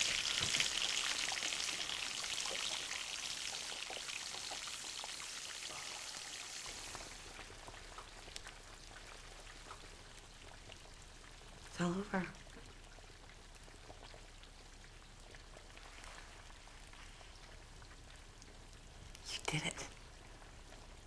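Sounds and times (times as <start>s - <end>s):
oil sizzling in a deep fryer: 0.0s - 19.3s.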